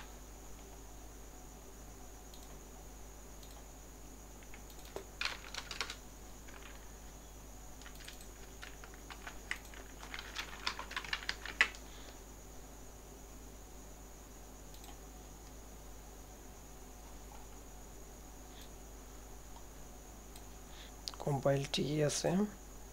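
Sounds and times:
typing on computer keyboard: 4.4 - 6.8, 7.8 - 11.8.

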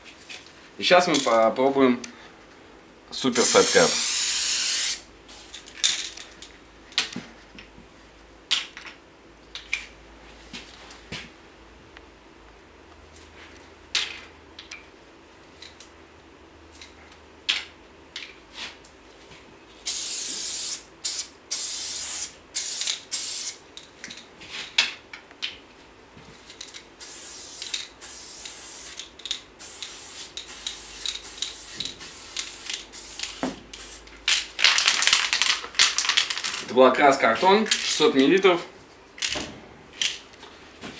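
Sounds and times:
spray paint can spraying: 3.4 - 5.1, 19.9 - 23.6, 26.7 - 36.5.

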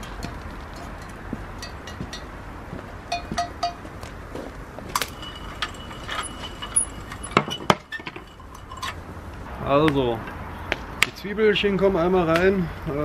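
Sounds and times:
metal clinking: 0.0 - 2.4, 4.9 - 9.5
wood fire crackling: 3.8 - 9.5.

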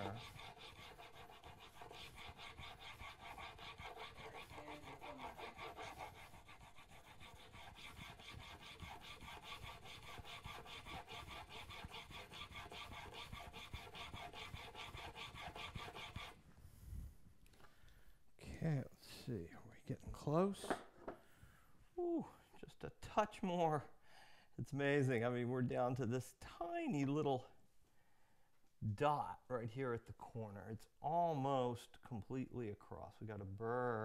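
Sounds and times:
steel scraping on sharpening stone: 0.0 - 16.3.

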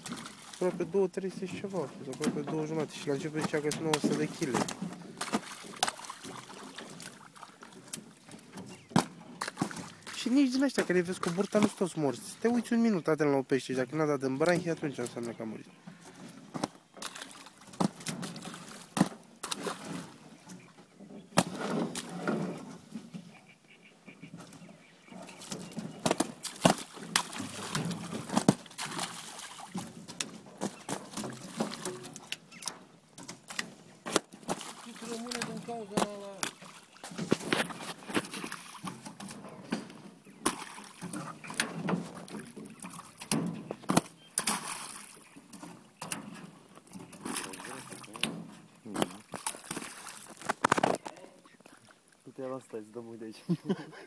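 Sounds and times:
sharp water splashes: 0.0 - 12.6, 16.6 - 20.2, 25.3 - 32.7, 33.4 - 39.4, 40.3 - 46.2, 47.0 - 51.0
water sloshing: 0.0 - 52.5
fish slapping on wet tarp: 3.3 - 8.0, 16.6 - 20.2, 25.5 - 31.9, 33.5 - 39.1, 40.4 - 41.1, 42.8 - 45.2, 48.9 - 51.1.

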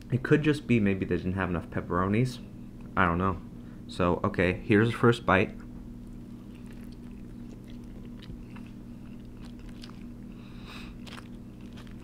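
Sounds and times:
steady low hum: 0.0 - 12.0
close chewing with crunches: 6.0 - 12.0.

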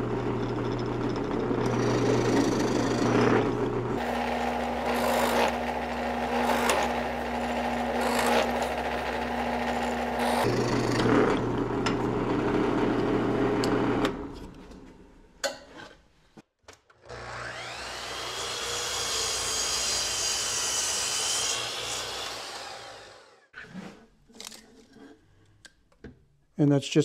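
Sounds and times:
drill press motor running: 0.0 - 14.3, 17.0 - 23.5
miter saw cutting wood: 1.5 - 14.3, 17.0 - 23.5.

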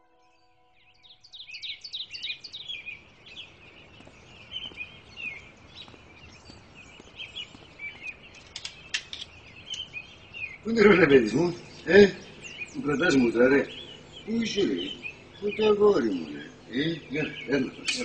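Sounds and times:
small birds chirping: 0.0 - 18.0
sharp clicks: 8.0 - 9.9.

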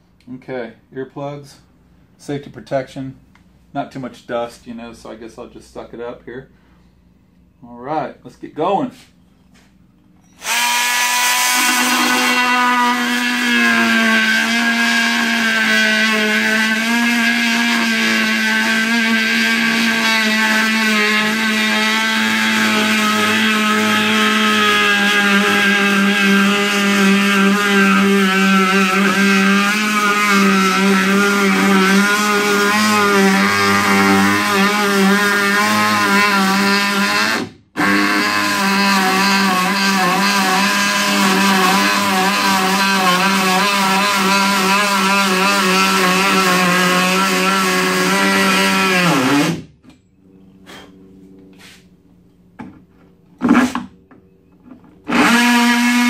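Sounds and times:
oscillating multi-tool cutting board: 10.3 - 49.6, 55.1 - 56.0.

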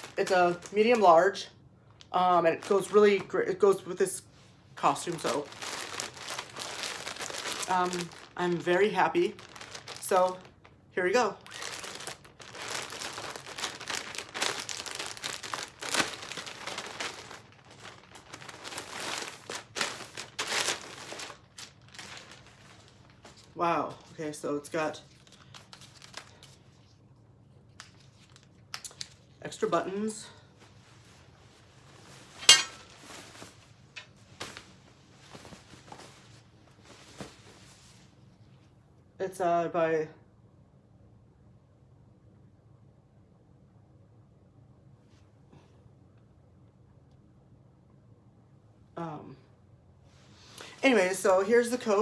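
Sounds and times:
plastic bag crinkling: 0.0 - 1.4, 2.0 - 4.0, 4.8 - 26.7
fabric rustling: 4.3 - 10.6, 11.2 - 24.0, 30.5 - 38.5.

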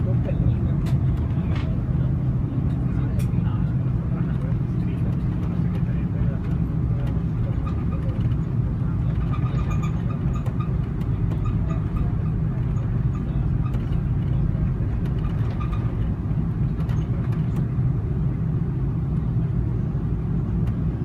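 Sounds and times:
jet engines idling: 0.0 - 21.0
faint clicks and rattles: 4.4 - 17.8.

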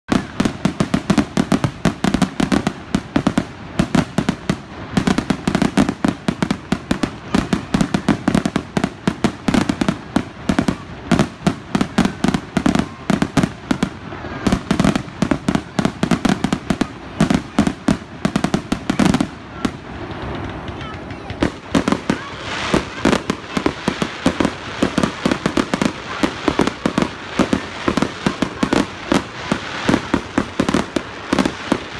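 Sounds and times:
fireworks bangs and crackling: 0.0 - 31.9.

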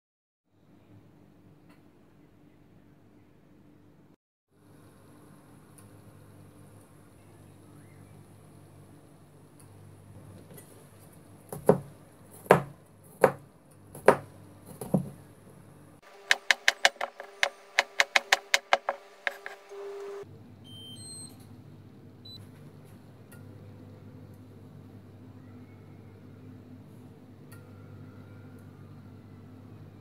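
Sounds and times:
knife chopping on plastic board: 11.5 - 15.1, 16.2 - 19.7
heavy knocks: 16.3 - 19.6.

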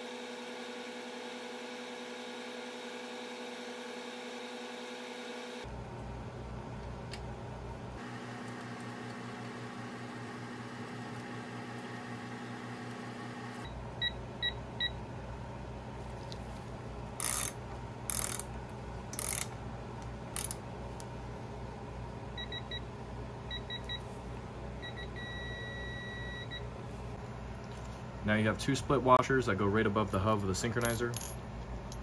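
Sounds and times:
wrench ratcheting bursts: 17.2 - 18.5, 19.1 - 19.5, 20.4 - 20.6
long steady beep: 24.8 - 26.6.

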